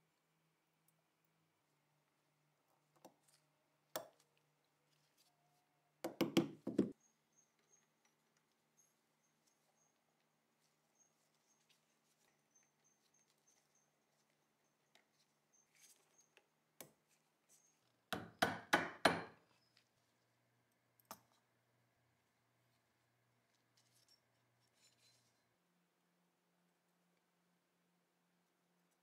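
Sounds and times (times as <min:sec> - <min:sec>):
sharp knocks on metal part in vise: 0:18.2 - 0:19.4.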